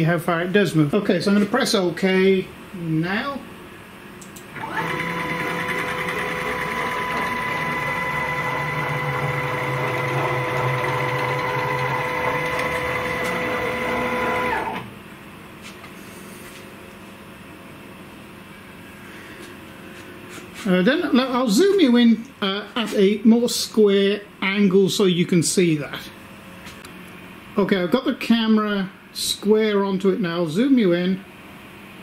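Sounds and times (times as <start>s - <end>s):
stepper motors whining: 4.6s - 14.9s.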